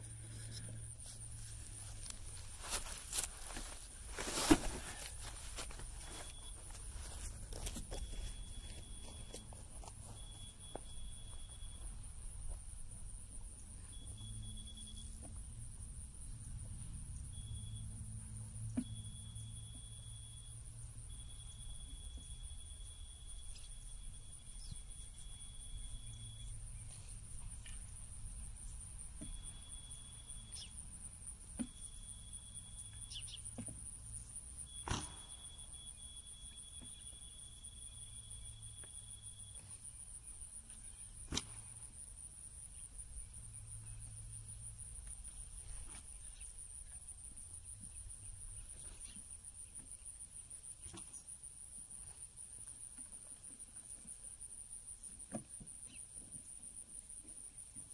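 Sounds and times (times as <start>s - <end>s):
electronic steady tone: 4.9s - 12.1s, 13.9s - 15.2s
insects trilling: 18.9s - 57.9s.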